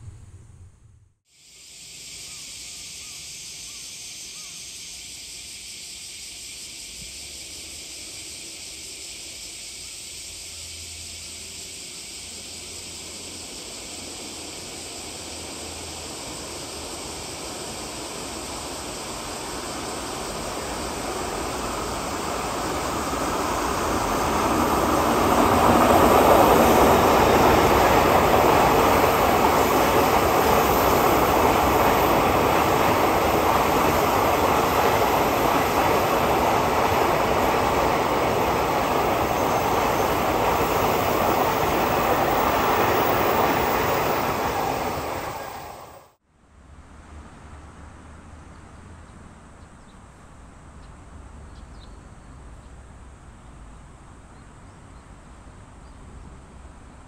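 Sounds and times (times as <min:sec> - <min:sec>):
train wheels rumbling on rails: 0:10.8 - 0:46.2.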